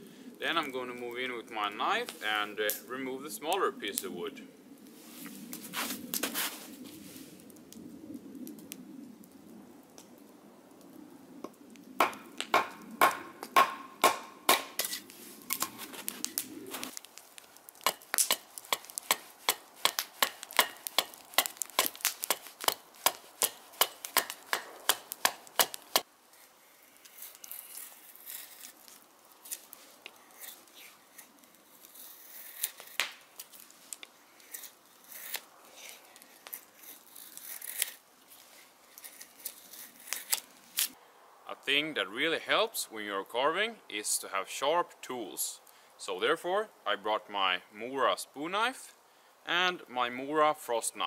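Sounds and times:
axe chopping wood: 12.0s - 15.0s, 17.8s - 26.0s
knife shaving wood: 14.8s - 41.0s.

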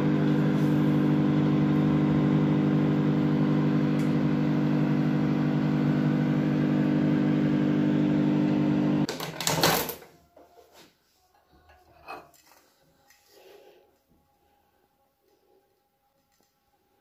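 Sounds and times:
motor droning: 0.0s - 9.1s.

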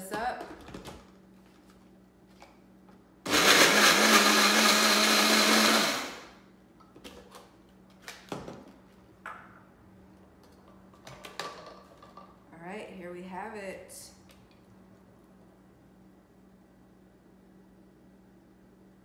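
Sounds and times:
blender running: 3.3s - 6.4s.

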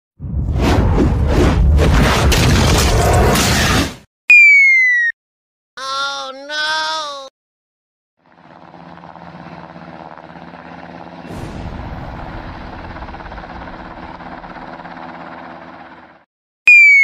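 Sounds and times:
explosion blast: 0.2s - 4.0s, 11.2s - 14.3s
helicopter rotor and engine: 8.2s - 16.3s.

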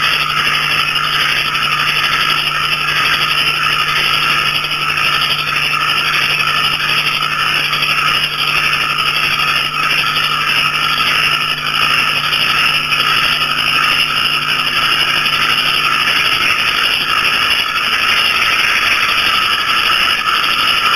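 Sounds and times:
frogs and crickets chorus: 0.0s - 20.9s.

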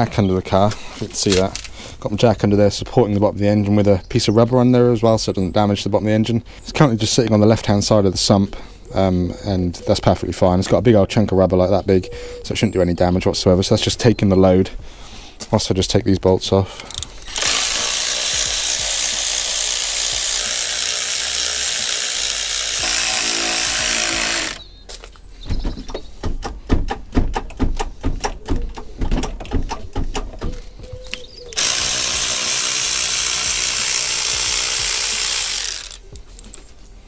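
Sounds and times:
ratcheting clicks: 16.8s - 24.6s, 31.6s - 36.0s
power tool running: 16.9s - 24.6s, 31.6s - 36.0s.

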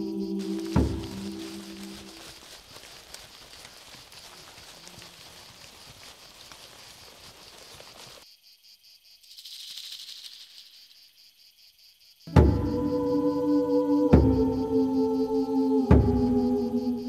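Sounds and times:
insects chirping: 0.0s - 17.0s
soft rustling hiss: 0.4s - 8.2s.

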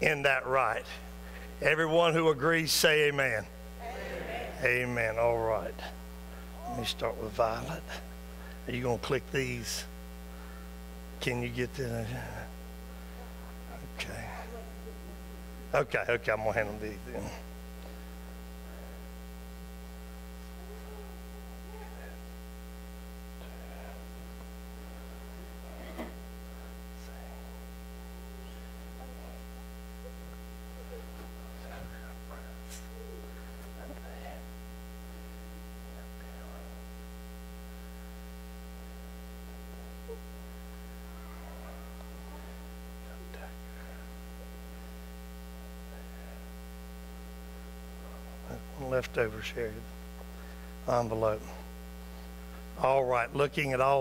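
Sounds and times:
electrical mains hum: 0.0s - 54.0s.

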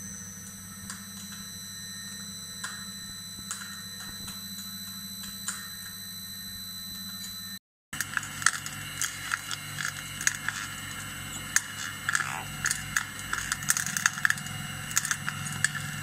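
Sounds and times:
oil press motor humming: 8.0s - 16.0s
seeds cracking and clicking: 8.0s - 16.0s.

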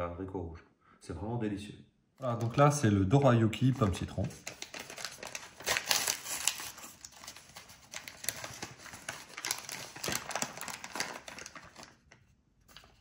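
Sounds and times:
plastic wrapper crinkling: 2.2s - 13.0s.

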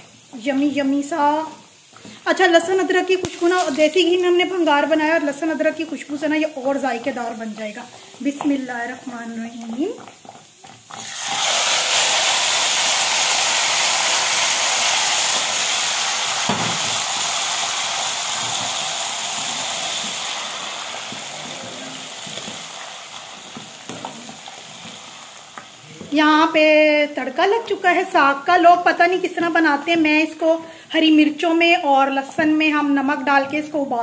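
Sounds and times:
hot ghee hissing on greens: 11.0s - 26.0s.

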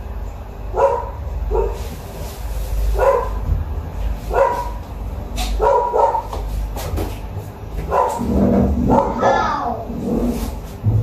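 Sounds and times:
dog barking: 0.7s - 1.8s, 3.0s - 3.4s, 4.3s - 4.8s, 5.6s - 6.3s, 7.9s - 8.3s, 8.9s - 9.4s
low steady rumble: 7.9s - 11.0s.

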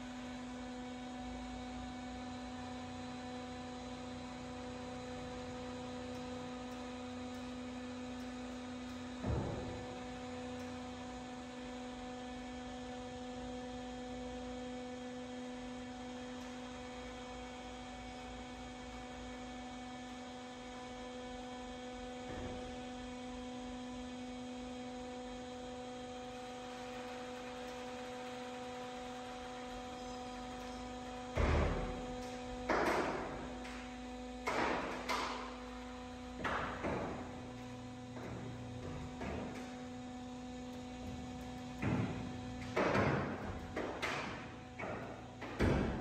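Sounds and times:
hydraulic power pack humming: 17.2s - 46.0s.

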